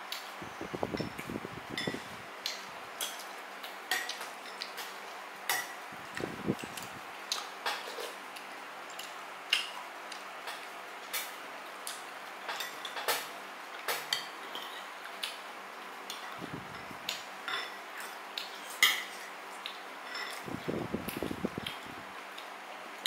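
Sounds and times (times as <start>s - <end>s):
cutlery clinking on plates: 1.8s - 3.2s, 3.9s - 4.9s, 5.5s - 5.8s, 7.6s - 8.2s, 12.5s - 14.9s, 17.1s - 19.3s, 20.0s - 20.5s.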